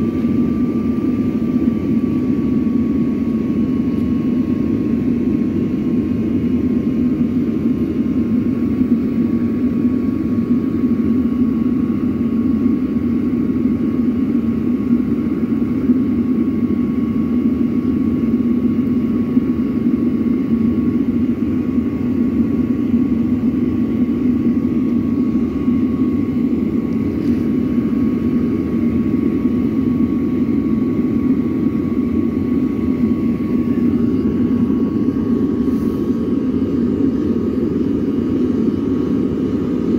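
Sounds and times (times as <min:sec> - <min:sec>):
thin steady whine: 0:00.0 - 0:39.9
furnace roaring: 0:21.0 - 0:39.9.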